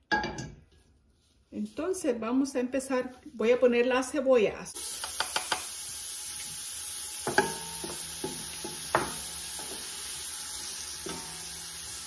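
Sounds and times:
onions sizzling in oil: 4.7s - 12.0s
wooden spoon knocking on pot: 7.3s - 9.9s.

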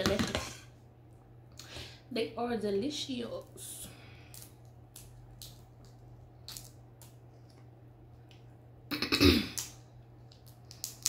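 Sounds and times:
person burping or clearing throat: 8.9s - 9.6s.

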